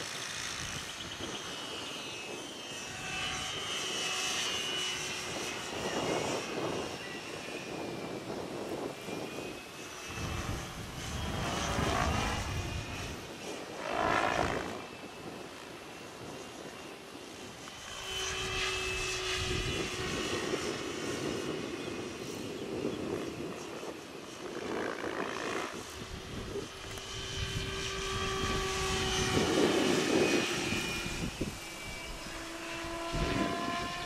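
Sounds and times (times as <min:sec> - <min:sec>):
model helicopter whining: 0:00.0 - 0:34.0
wind rumbling on microphone: 0:00.0 - 0:34.0.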